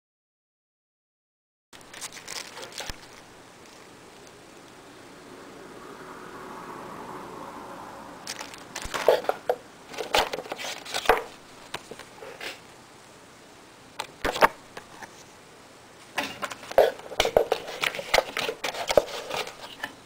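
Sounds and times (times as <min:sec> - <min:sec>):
packaging crinkling rustles: 0:01.8 - 0:04.4, 0:08.3 - 0:12.6, 0:16.2 - 0:20.0.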